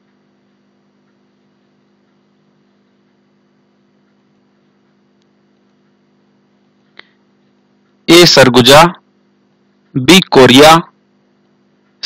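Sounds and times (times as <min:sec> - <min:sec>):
faint electrical hum: 0:00.0 - 0:12.0
recording hiss: 0:08.1 - 0:09.0, 0:10.0 - 0:10.9.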